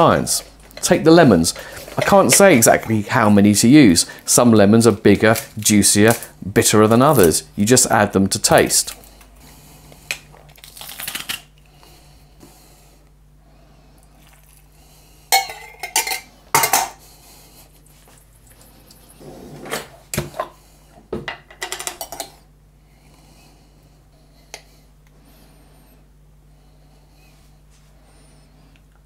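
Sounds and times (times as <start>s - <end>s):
spoon and jars clinking: 15.4s - 17.0s.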